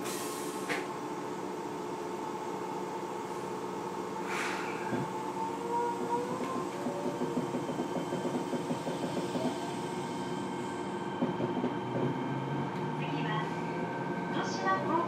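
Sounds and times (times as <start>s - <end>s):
train wheels rumbling on rails: 3.2s - 15.0s.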